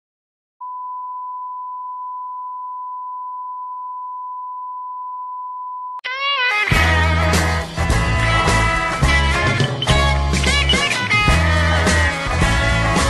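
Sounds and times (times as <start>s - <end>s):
steady electronic beep: 9.5s - 11.1s.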